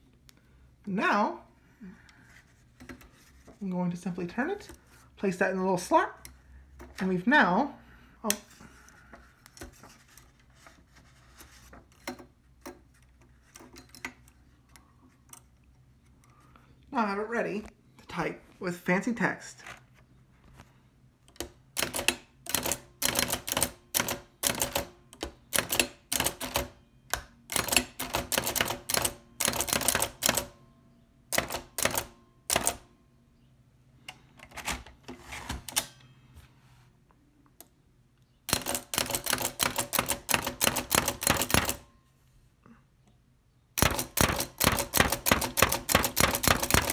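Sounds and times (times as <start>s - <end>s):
typewriter keys clacking: 43.8s - 46.9s.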